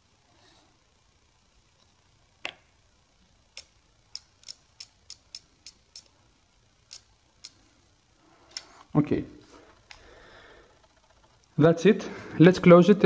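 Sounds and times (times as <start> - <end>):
small sharp clicks in hard drive: 3.5 - 6.2, 6.9 - 7.6.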